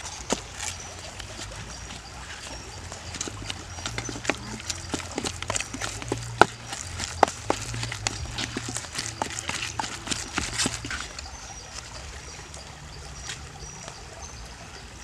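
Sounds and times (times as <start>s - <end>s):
wooden pestle knocking in bowl: 3.1s - 11.2s.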